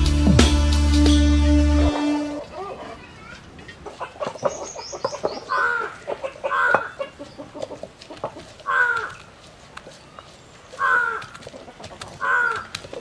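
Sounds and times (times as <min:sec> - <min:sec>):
bird harsh calls: 0:04.0 - 0:07.6, 0:08.7 - 0:09.3, 0:10.8 - 0:11.4, 0:12.2 - 0:13.0.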